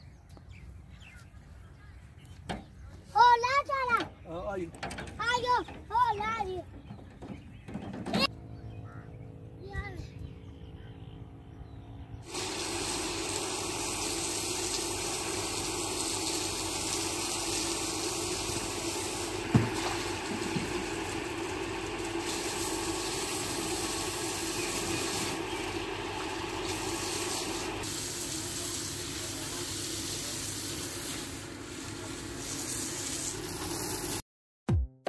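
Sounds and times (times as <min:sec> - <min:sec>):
hose spraying water on brick: 0:12.3 - 0:34.2.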